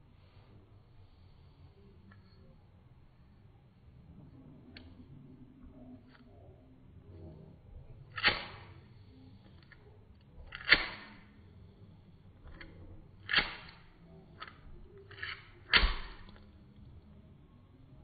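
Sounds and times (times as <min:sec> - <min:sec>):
lighter spark wheel clicking: 0:08.1 - 0:08.9, 0:09.5 - 0:11.4, 0:12.4 - 0:16.5.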